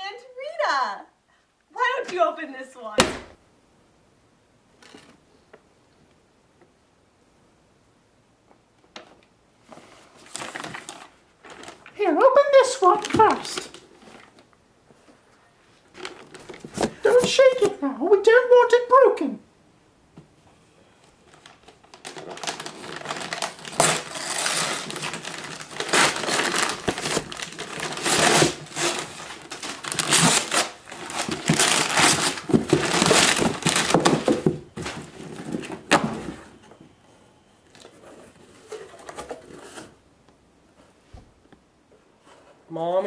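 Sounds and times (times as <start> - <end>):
wrapping paper ripping and crumpling: 9.9 - 12.0, 21.2 - 35.7.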